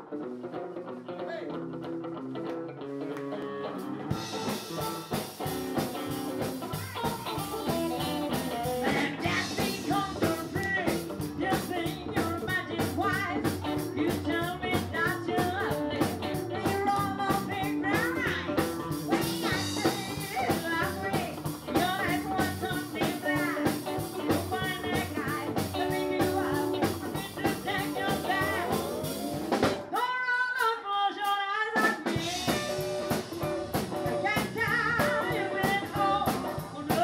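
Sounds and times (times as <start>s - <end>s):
rockabilly guitar: 0.0s - 37.0s
drums and band playing: 3.5s - 37.0s
woman singing: 6.6s - 29.0s, 29.9s - 37.0s.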